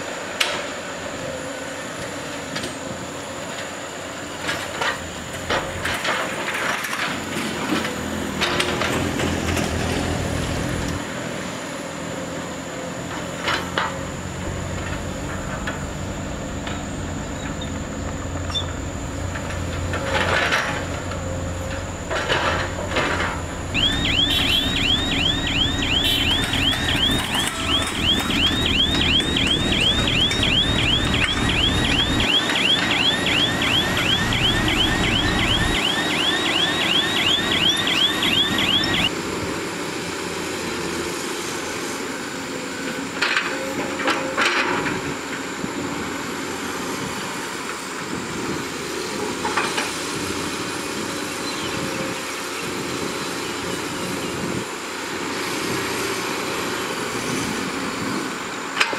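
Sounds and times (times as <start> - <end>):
excavator diesel engine: 0.0 - 58.9
truck engine: 0.0 - 58.9
electronic warning alarm chirps: 21.9 - 39.1.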